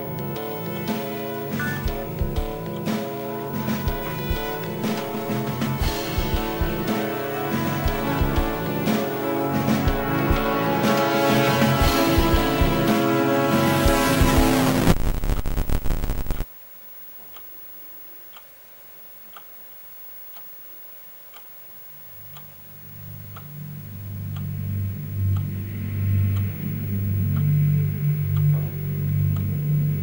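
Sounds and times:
soft ticking: 0:00.0 - 0:09.3, 0:14.8 - 0:30.0
loud music: 0:00.0 - 0:14.9
low droning hum: 0:22.2 - 0:30.0.

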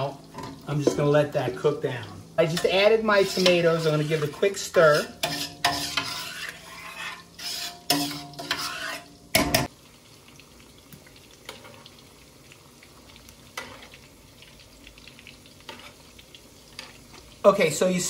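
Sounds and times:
meatballs sizzling in oil: 0:00.0 - 0:18.0
spoon scraping metal pot: 0:02.5 - 0:09.7.

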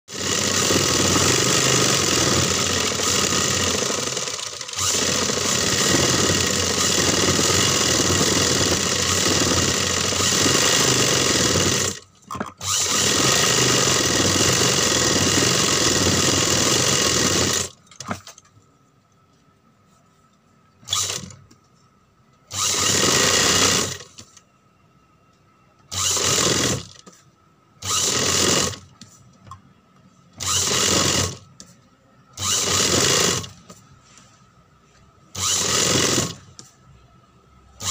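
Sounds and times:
sewing machine stitching: 0:00.1 - 0:18.2, 0:20.9 - 0:21.4, 0:25.9 - 0:27.2, 0:27.8 - 0:28.9, 0:30.4 - 0:31.4, 0:32.4 - 0:33.7, 0:35.4 - 0:36.5.

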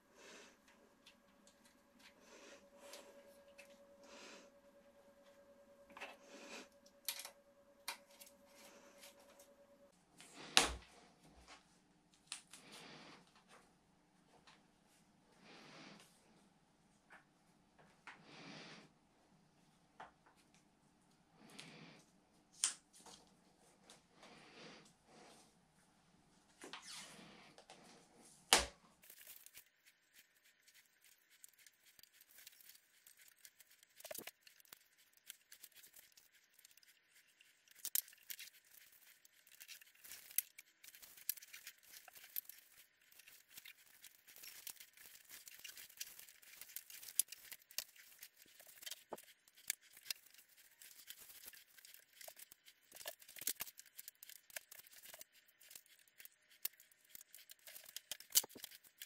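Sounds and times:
tape crackling and rustling: 0:00.2 - 0:10.8, 0:28.6 - 0:59.0.

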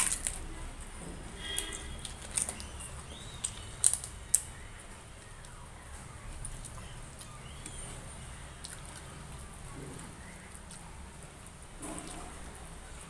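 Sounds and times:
papad crunching: 0:00.0 - 0:05.6
soft eating sounds: 0:00.0 - 0:13.0.

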